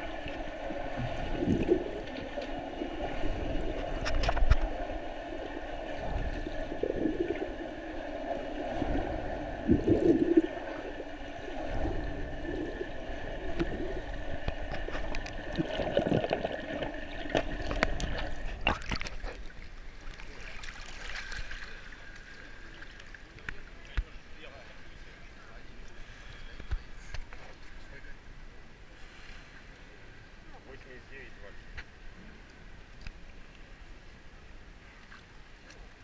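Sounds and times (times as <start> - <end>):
water gurgling underwater: 0.0 - 19.7.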